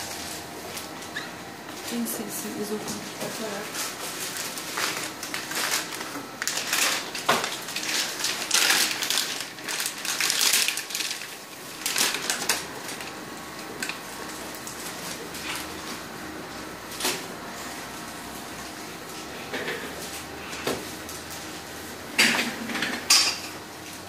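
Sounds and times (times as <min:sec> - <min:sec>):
plastic packaging crinkling: 0:02.8 - 0:13.2.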